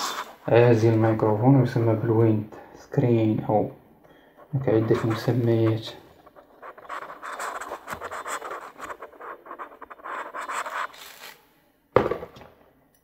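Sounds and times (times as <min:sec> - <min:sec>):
hands rubbing microphone windscreen: 0:04.6 - 0:11.4.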